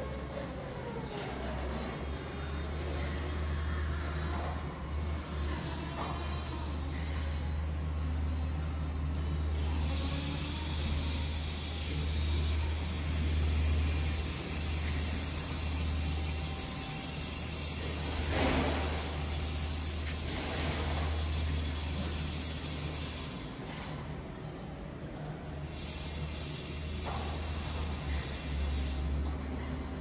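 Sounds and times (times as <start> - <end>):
low machine hum: 0.0 - 30.0.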